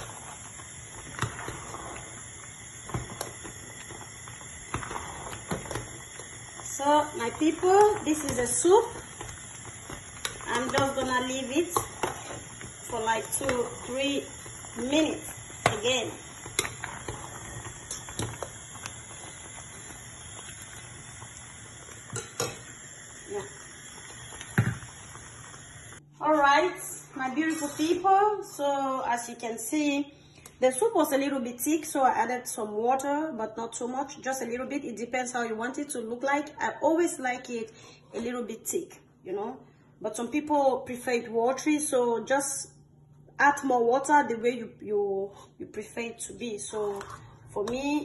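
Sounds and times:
spoon stirring thick soup: 0.0s - 6.6s, 7.3s - 20.1s, 46.8s - 47.8s.

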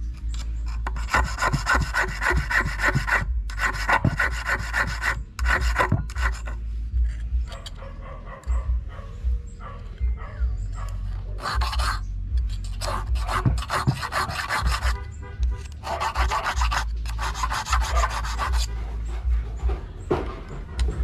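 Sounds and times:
blade rasping on steel wire: 0.2s - 7.7s, 11.4s - 15.0s, 15.6s - 18.9s.

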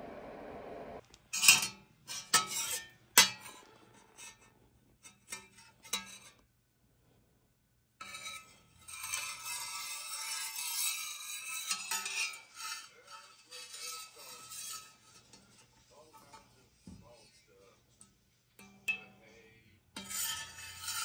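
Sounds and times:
dishes and utensils clinking: 8.0s - 21.0s.

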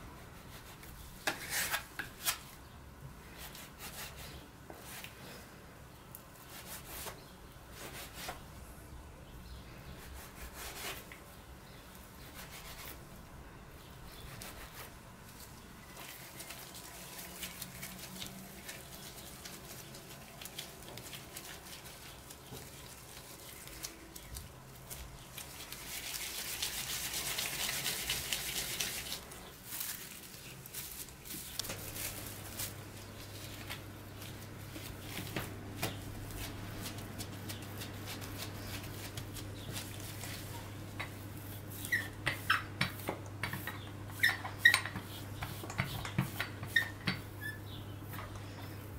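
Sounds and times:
dough rubbed and rolled: 0.0s - 2.4s, 3.2s - 5.6s, 6.3s - 8.5s, 9.8s - 11.4s, 12.0s - 13.2s, 14.0s - 48.9s
steady low hum: 29.1s - 44.2s.

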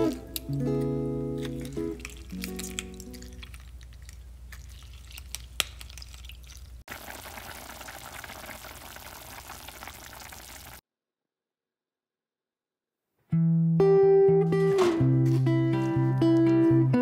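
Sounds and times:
soup bubbling in pot: 6.1s - 10.8s.

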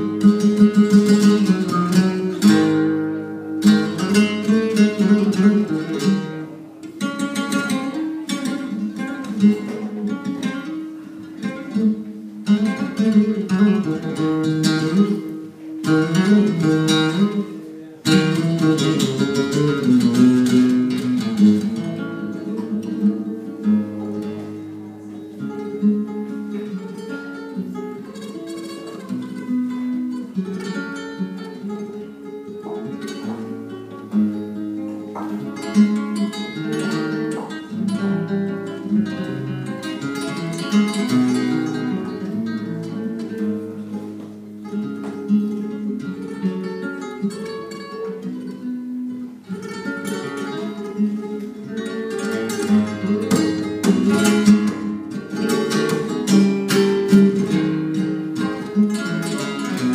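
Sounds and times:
guitar strumming bursts: 0.0s - 59.9s
nylon-string guitar playing flamenco: 0.0s - 59.9s.

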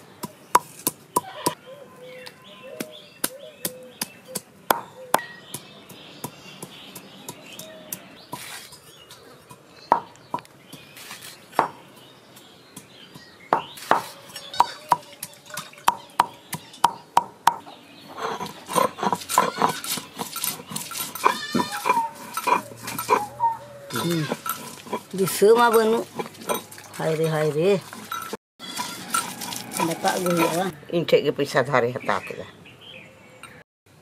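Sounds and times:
pestle knocking on stone slab: 2.8s - 7.7s, 9.5s - 10.5s, 12.7s - 17.6s
animal calls: 18.0s - 27.0s.

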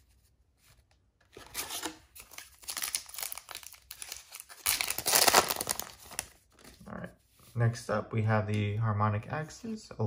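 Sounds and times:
foil wrapper crinkling and tearing: 2.2s - 6.4s.

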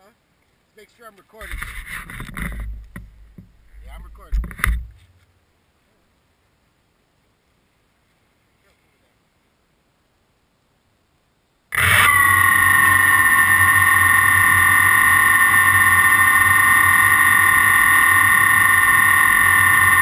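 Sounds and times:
quadcopter motors whining: 11.7s - 20.0s.

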